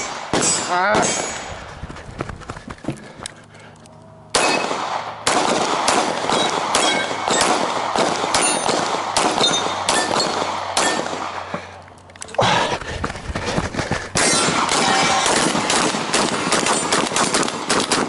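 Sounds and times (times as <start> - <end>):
pistol shots: 0.0 - 1.5, 4.3 - 11.6, 14.2 - 18.0
steel plates ringing: 6.4 - 7.4, 8.4 - 8.8, 9.4 - 11.1, 14.2 - 15.4.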